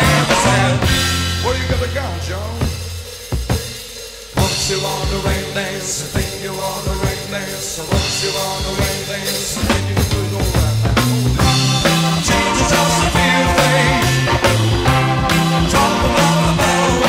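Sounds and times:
rock band playing: 0.0s - 17.0s.

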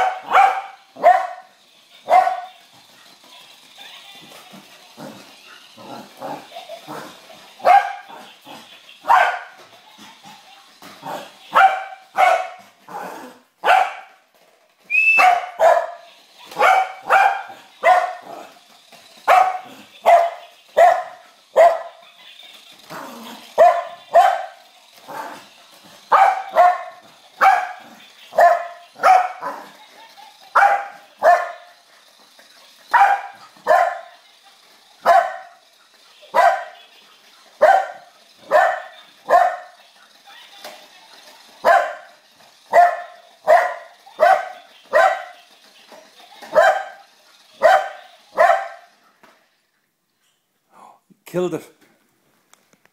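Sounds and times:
dog barking: 0.0s - 2.5s, 7.6s - 8.2s, 9.0s - 9.6s, 11.1s - 12.6s, 13.6s - 14.2s, 15.2s - 16.0s, 16.6s - 18.4s, 19.3s - 22.0s, 23.6s - 24.6s, 26.1s - 29.6s, 30.5s - 31.7s, 32.9s - 34.1s, 35.0s - 35.6s, 36.3s - 36.8s, 37.6s - 39.7s, 41.6s - 42.1s, 42.7s - 45.4s, 46.5s - 47.0s, 47.6s - 48.9s.

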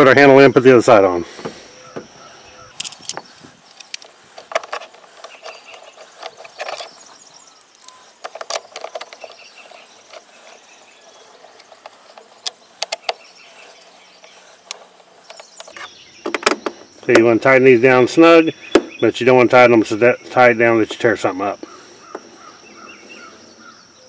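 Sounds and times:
allen wrench clicks and rattles: 2.8s - 7.0s, 7.6s - 15.8s.

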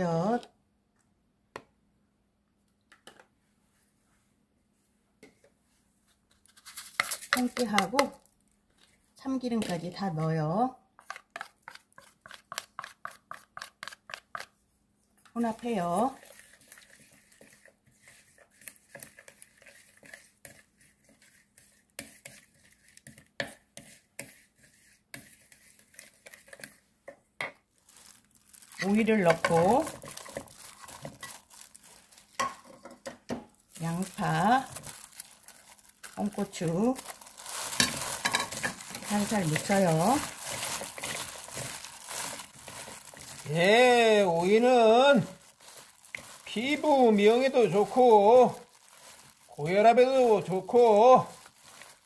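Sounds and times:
utensil scraping glass bowl: 16.1s - 26.8s.

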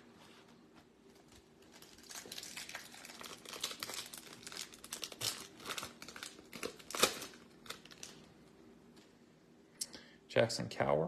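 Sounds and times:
plastic wrapper crinkling and tearing: 1.2s - 8.3s.

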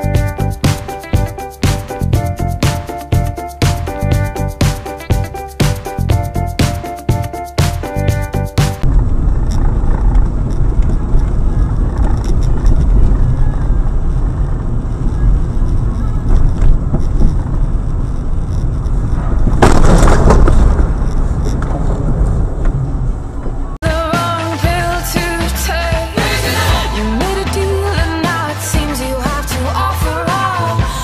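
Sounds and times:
car engine and road rumble: 8.0s - 23.8s.

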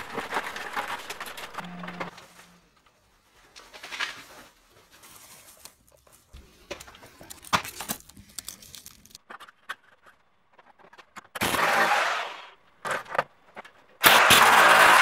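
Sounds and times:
foil insulation crinkling: 0.0s - 9.2s.

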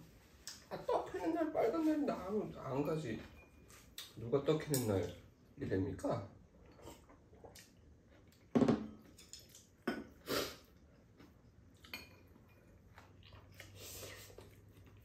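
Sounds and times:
noodles being slurped: 13.1s - 15.0s.

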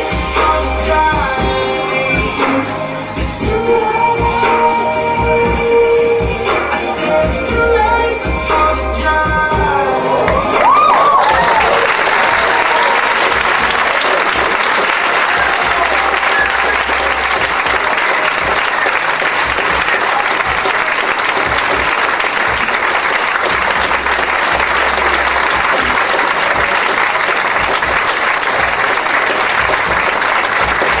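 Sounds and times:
audience applauding: 10.2s - 31.0s.

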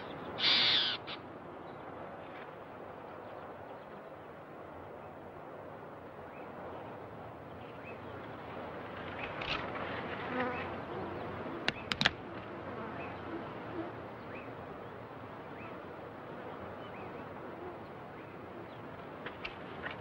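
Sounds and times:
sharp clicks: 11.7s - 12.2s.

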